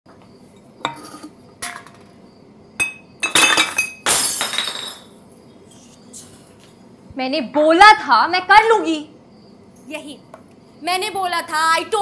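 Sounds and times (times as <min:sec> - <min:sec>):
glass crashing with ringing clatter: 0:02.8 - 0:05.1
glass objects clinking: 0:02.8 - 0:05.1.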